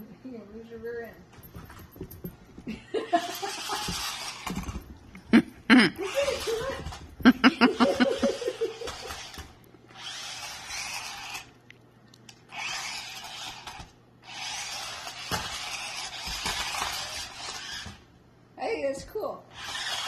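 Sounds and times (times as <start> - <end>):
toy car motors whirring: 3.2 - 4.8, 6.0 - 11.6, 12.5 - 18.1, 19.5 - 20.0.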